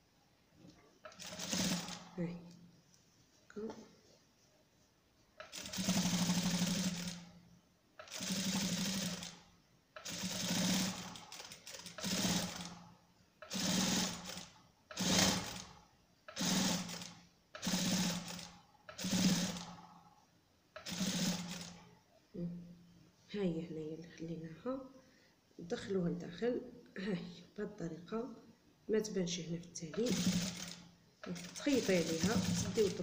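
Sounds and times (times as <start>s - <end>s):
electric sewing machine stitching: 1.1s - 2.2s, 5.4s - 7.3s, 8.0s - 9.4s, 10.0s - 12.8s, 13.4s - 19.8s, 20.8s - 21.8s, 30.0s - 33.0s.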